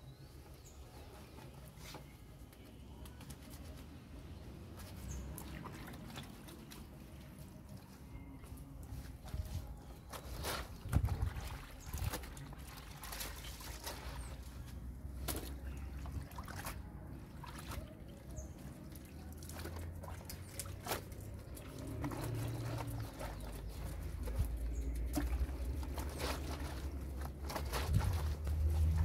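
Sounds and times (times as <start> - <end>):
water splashing and trickling: 0.0 - 29.0
wet clothes scrubbed by hand: 8.8 - 29.0.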